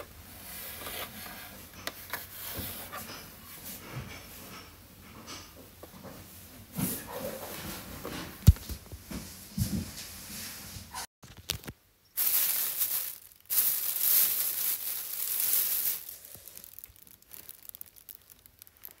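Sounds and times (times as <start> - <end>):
plastic film crinkling: 11.2 - 19.0.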